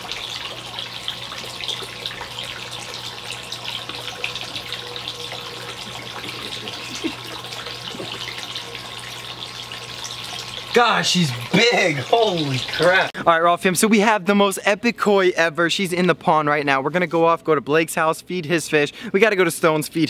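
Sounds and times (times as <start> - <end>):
water pouring into a pond: 0.0 - 13.1
low steady hum: 0.0 - 19.2.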